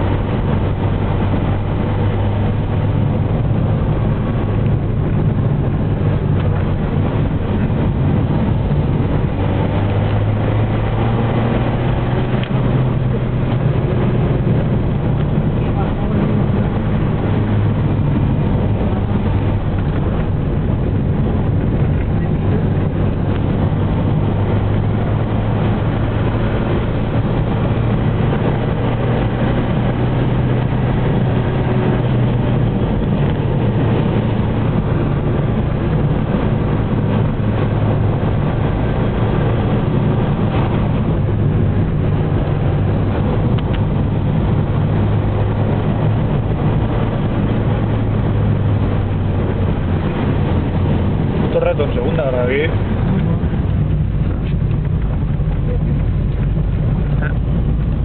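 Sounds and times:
vehicle engine and road noise: 0:00.0 - 0:58.0.

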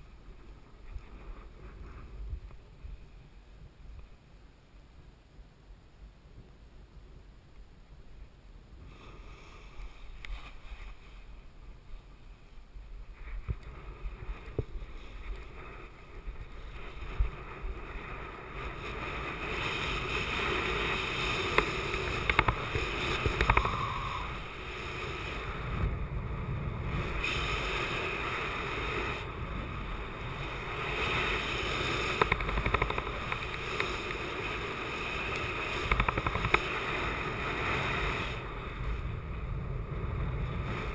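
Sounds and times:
wind rushing over microphone: 0:09.6 - 0:40.9.

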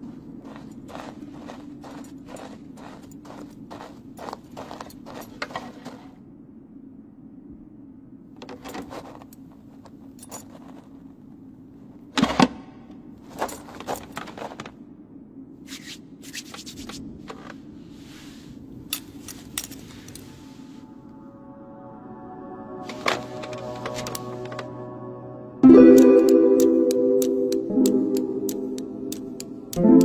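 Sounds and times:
steady low hum: 0:00.0 - 0:30.0
footsteps clicking: 0:00.4 - 0:06.1
knitting needles clicking: 0:25.9 - 0:30.0.

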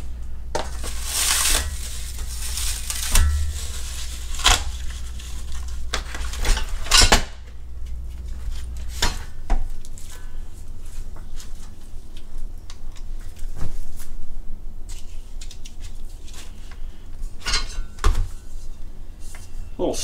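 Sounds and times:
packaging rustling: 0:00.5 - 0:06.4.

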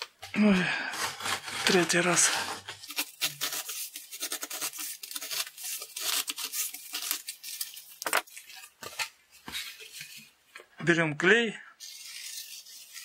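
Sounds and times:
knife cutting cardboard: 0:00.0 - 0:07.4.

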